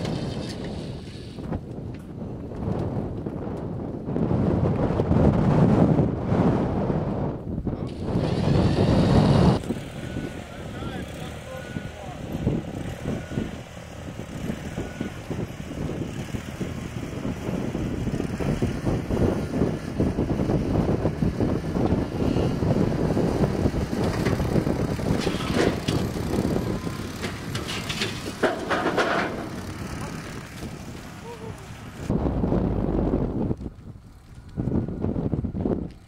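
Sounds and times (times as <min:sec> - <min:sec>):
loader engine rumbling: 0:00.0 - 0:36.0
metal clanks: 0:25.0 - 0:26.3, 0:27.1 - 0:30.1.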